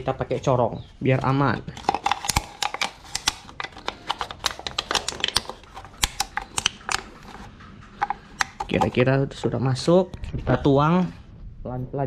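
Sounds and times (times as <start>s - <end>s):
funnel clicking and knocking: 1.7s - 9.1s.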